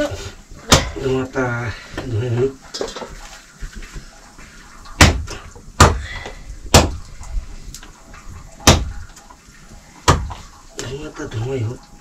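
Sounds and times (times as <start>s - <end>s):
heavy knocks on something hard: 5.0s - 6.0s, 6.7s - 7.0s, 8.6s - 8.9s, 10.1s - 10.4s.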